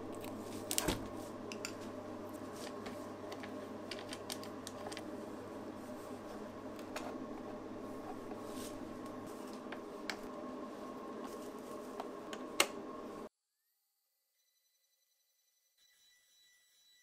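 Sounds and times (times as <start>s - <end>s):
steady hum: 0.0s - 13.3s.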